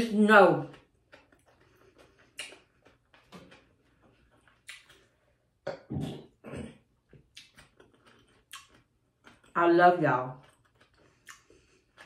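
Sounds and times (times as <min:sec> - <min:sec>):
mouth clicks and smacks: 0:02.2 - 0:03.0, 0:04.5 - 0:05.0, 0:07.2 - 0:09.4.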